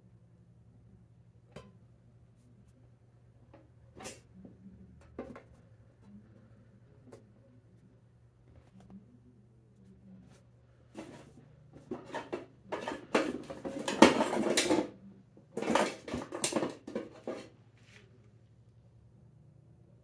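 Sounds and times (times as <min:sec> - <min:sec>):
items clattering in metal can: 0:11.0 - 0:14.9, 0:15.5 - 0:17.5.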